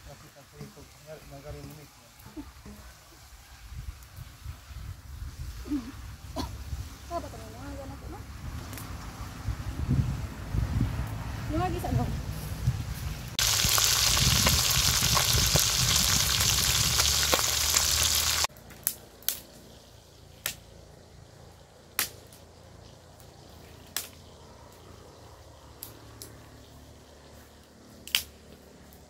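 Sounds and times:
fish sizzling in hot oil: 0:13.4 - 0:18.5.

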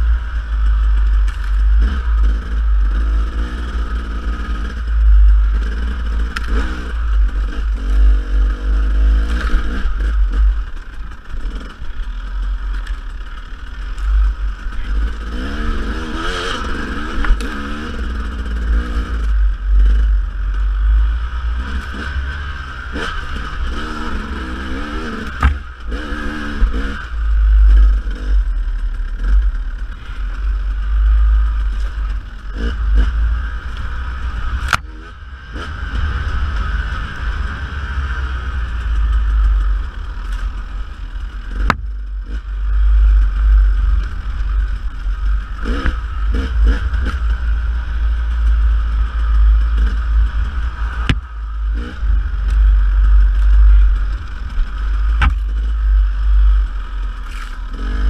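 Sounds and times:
dirt bike engine revving: 0:00.0 - 0:58.0
wind rumble on microphone: 0:00.0 - 0:58.0
sharp knocks: 0:25.4 - 0:25.6, 0:55.2 - 0:55.4.

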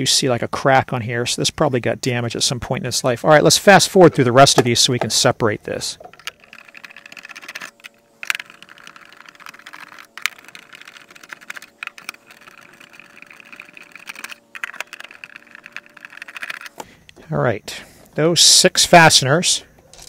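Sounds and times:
screwdriver clicks and scrapes: 0:06.0 - 0:16.9.

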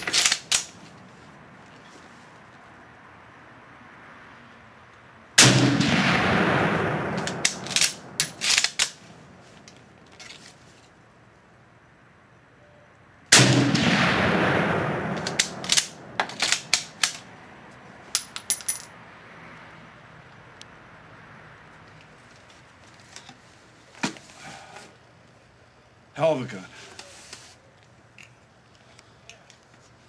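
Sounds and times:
rifle shots: 0:05.4 - 0:09.0, 0:13.3 - 0:17.2.

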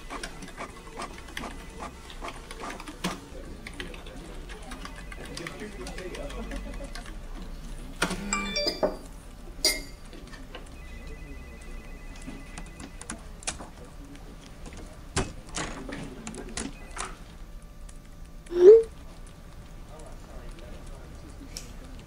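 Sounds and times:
thin steady tone: 0:10.8 - 0:13.0.

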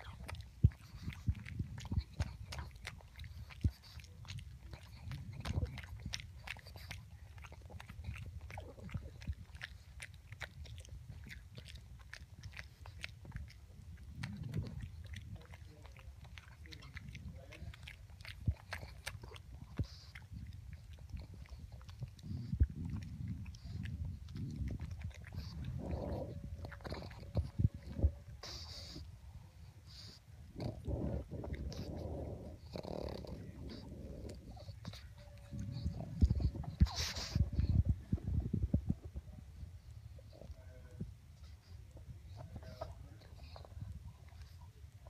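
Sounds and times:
dog licking and chewing: 0:00.0 - 0:45.0
dog snuffling: 0:22.2 - 0:29.1, 0:29.9 - 0:38.2.

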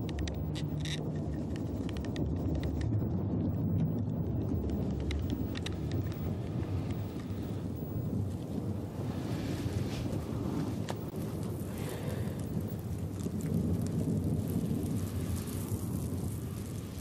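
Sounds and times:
fire drill clicking and scraping: 0:00.0 - 0:07.6
low wind rumble: 0:00.0 - 0:17.0.

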